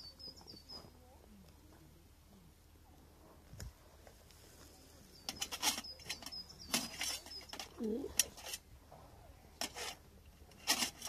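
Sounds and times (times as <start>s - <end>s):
cooking gear rustling and scraping: 4.0s - 11.0s.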